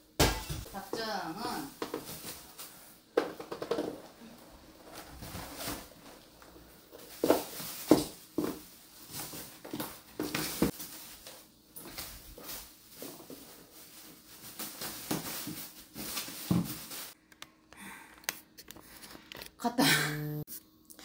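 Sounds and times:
bubble wrap rustling and crinkling: 4.2s - 17.2s.

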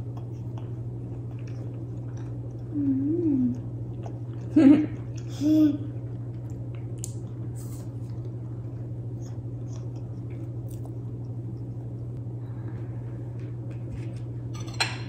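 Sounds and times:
chewing: 0.0s - 5.3s, 5.9s - 12.1s
steady low hum: 0.0s - 15.0s.

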